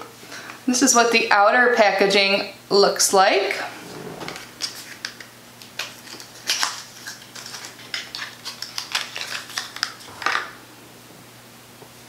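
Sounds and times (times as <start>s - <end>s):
paperboard packaging clicks and crinkles: 4.6s - 10.6s.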